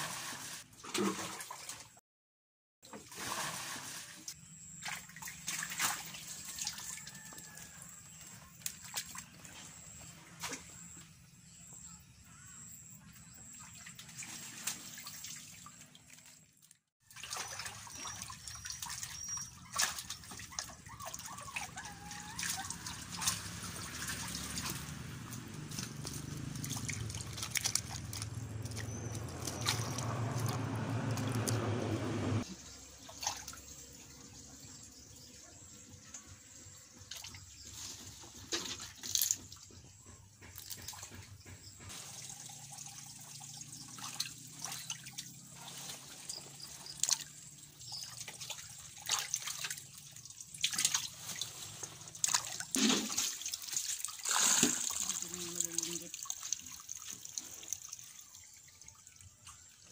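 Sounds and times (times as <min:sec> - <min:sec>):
water splashing and dripping: 0:00.0 - 0:02.0, 0:02.9 - 0:10.9, 0:13.4 - 0:34.0, 0:37.1 - 0:59.9
water running: 0:17.1 - 0:35.0, 0:41.9 - 0:59.9.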